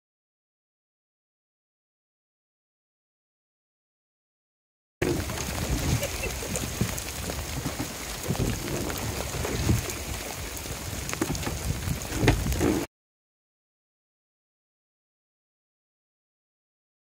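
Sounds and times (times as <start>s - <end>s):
heavy rain on water and boat: 5.0s - 12.9s
low rumbles: 5.0s - 12.9s.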